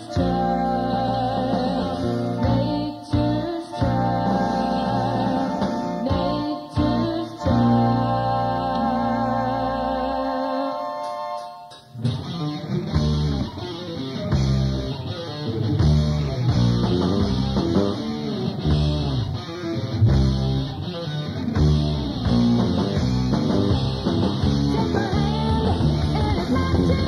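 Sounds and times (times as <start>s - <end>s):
rock band playing: 11.7s - 27.0s.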